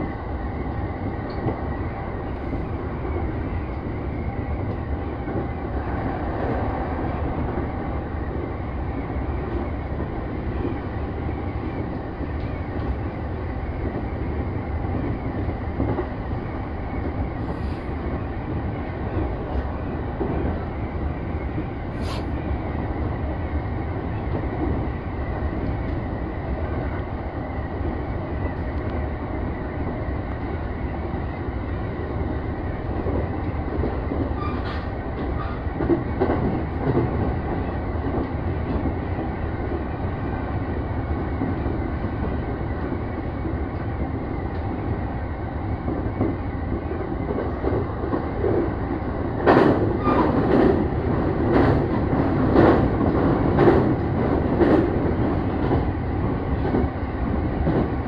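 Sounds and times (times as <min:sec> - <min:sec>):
train rumbling at speed: 0:00.0 - 0:58.0.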